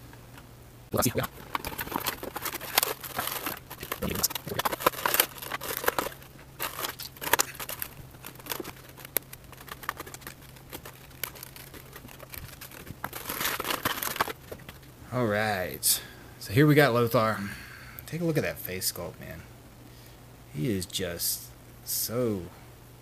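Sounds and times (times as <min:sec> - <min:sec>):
toy packaging crinkling: 0:01.0 - 0:14.9.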